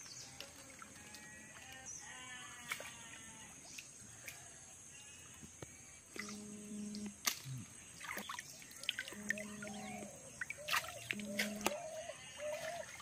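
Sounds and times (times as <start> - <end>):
small water splashes and drips: 2.6 - 4.4, 7.2 - 13.0
low steady hum: 5.6 - 12.9
birds chirping: 6.2 - 13.0.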